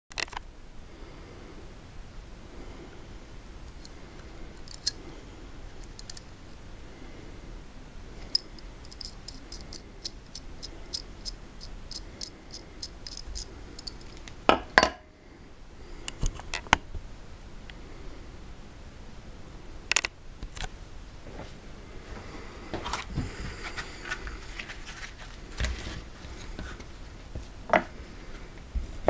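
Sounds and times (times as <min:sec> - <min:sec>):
metallic clicks of wrench: 0:04.6 - 0:05.0, 0:08.3 - 0:14.1.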